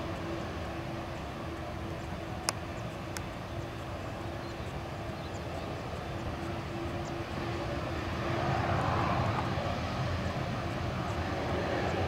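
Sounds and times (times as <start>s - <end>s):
jet engines humming and rumbling: 0.0s - 12.0s.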